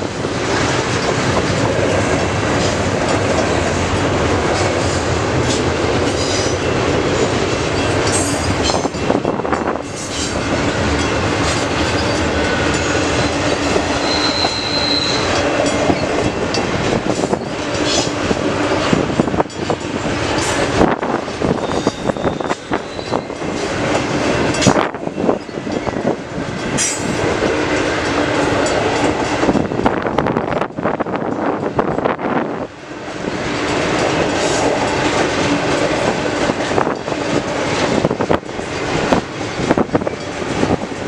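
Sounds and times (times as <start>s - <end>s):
freight train wheels rumbling on rail: 0.0s - 41.0s
high wheel squeal: 11.5s - 16.3s, 21.4s - 23.6s.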